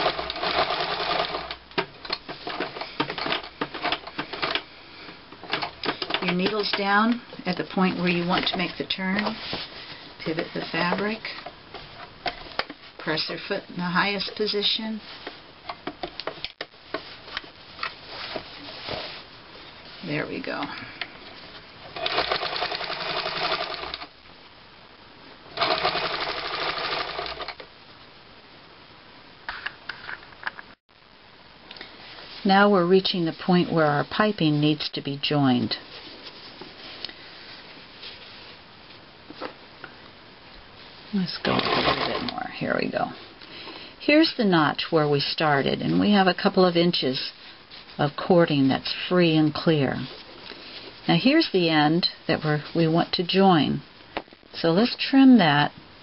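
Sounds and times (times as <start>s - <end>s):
sewing machine stitching: 0.0s - 1.6s, 22.0s - 24.1s, 25.6s - 27.6s, 41.5s - 42.3s.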